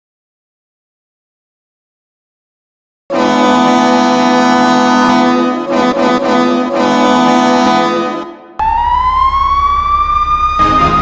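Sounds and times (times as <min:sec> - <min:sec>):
goal horn blasts: 0:03.1 - 0:08.6
siren winding up: 0:08.6 - 0:11.0.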